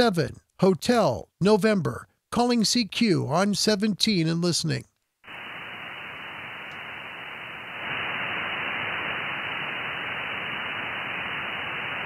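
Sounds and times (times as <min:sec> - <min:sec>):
radio receiver static hiss: 0:05.2 - 0:12.0.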